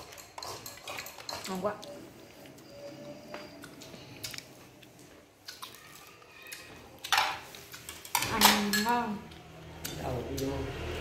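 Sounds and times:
person chewing food: 0.0s - 8.1s.

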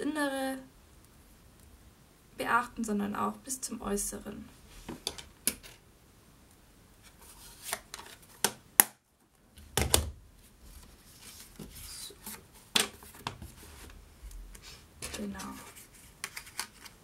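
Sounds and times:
paper rubbing and shifting: 7.0s - 8.4s, 10.6s - 17.0s.

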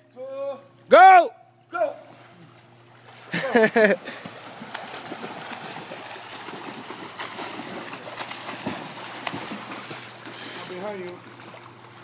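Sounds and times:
person shouting: 0.3s - 2.0s
swimmers splashing water: 2.0s - 12.0s.

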